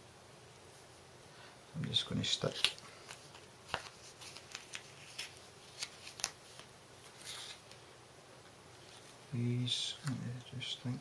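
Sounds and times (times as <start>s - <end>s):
plastic packaging rustle: 2.2s - 7.8s.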